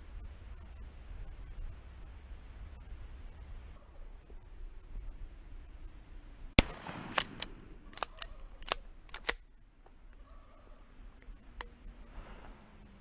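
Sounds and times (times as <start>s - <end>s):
shotgun shot with echo: 6.6s - 7.7s
sharp clicks: 6.6s - 9.5s, 11.2s - 11.8s.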